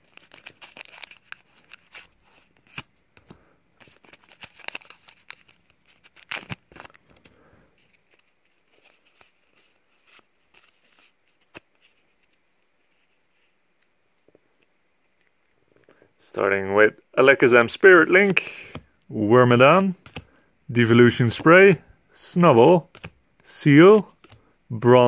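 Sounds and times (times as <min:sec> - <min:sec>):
plastic wrapper crinkling and tearing: 0:00.0 - 0:02.9, 0:03.8 - 0:09.4
cards rustling and clicking: 0:00.0 - 0:13.9, 0:17.7 - 0:25.0.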